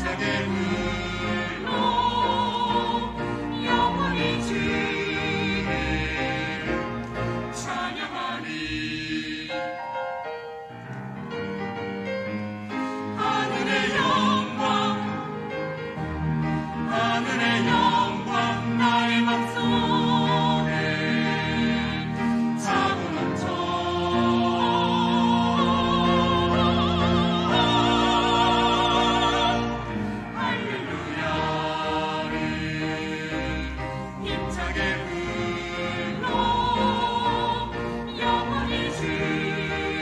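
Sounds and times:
pipe organ: 0:00.0 - 0:09.2
mixed choir singing a hymn: 0:00.0 - 0:09.9, 0:12.7 - 0:40.0
piano: 0:00.0 - 0:40.0.

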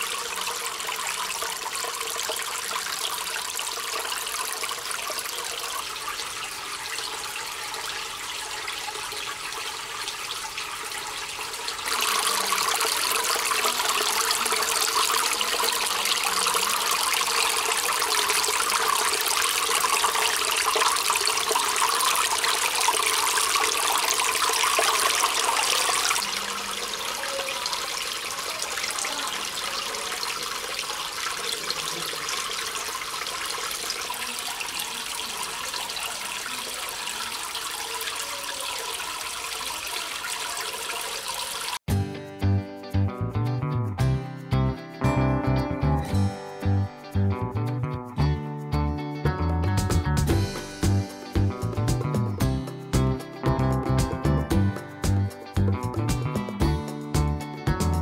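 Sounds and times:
water pouring into a tank: 0:00.0 - 0:41.9.

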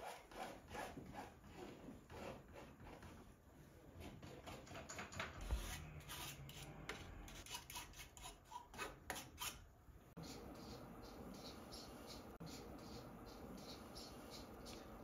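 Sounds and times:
palette knife scraping canvas: 0:00.0 - 0:03.3, 0:05.4 - 0:09.6.

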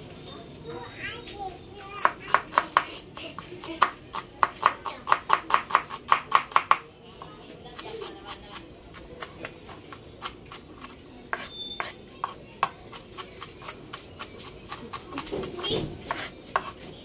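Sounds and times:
knife chopping on cutting board: 0:02.0 - 0:06.8, 0:10.2 - 0:16.8.

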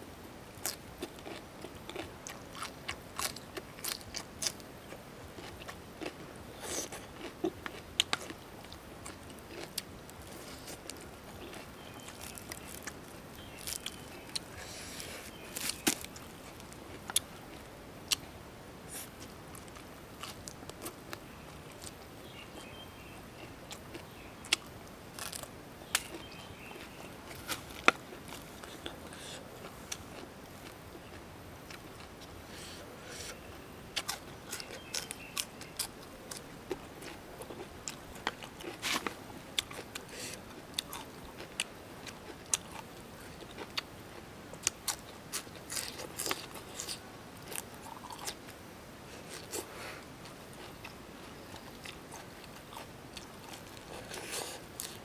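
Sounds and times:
crunching lettuce: 0:00.6 - 0:04.6, 0:09.0 - 0:18.2, 0:23.9 - 0:32.2, 0:34.0 - 0:43.8, 0:44.5 - 0:48.4, 0:50.6 - 0:55.0.

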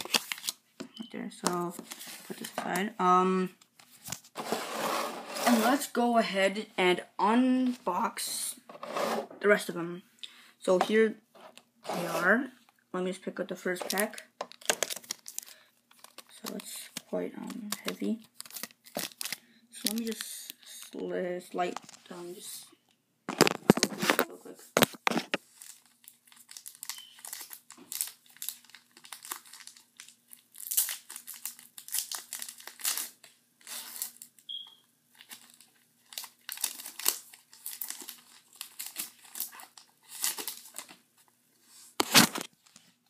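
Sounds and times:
foil wrapper crinkling and tearing: 0:00.0 - 0:00.6, 0:13.9 - 0:21.0, 0:23.4 - 0:34.5, 0:35.1 - 0:41.0.

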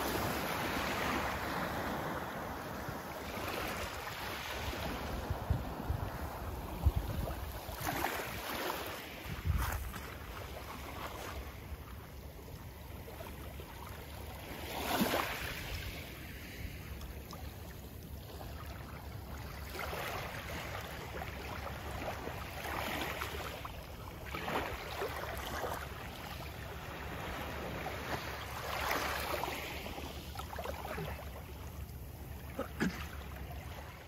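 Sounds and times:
waves lapping on pebbly shore: 0:00.0 - 0:11.7
wind rumble on microphone: 0:04.6 - 0:08.4, 0:09.2 - 0:10.6.

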